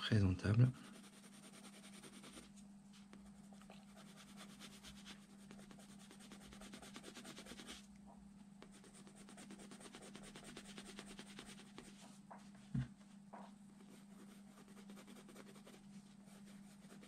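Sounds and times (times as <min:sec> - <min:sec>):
pencil scratching on paper: 0:00.7 - 0:02.5, 0:03.9 - 0:07.8, 0:08.6 - 0:12.0, 0:13.8 - 0:17.0.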